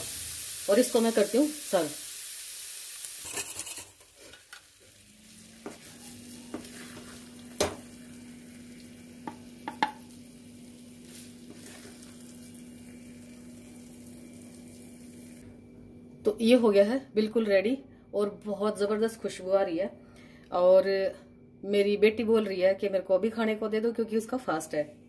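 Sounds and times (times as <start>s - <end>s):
light sizzle from pan: 0.0s - 15.5s
faint steady hum: 0.0s - 25.0s
wooden spatula scraping a pan: 5.2s - 7.5s, 11.0s - 12.2s.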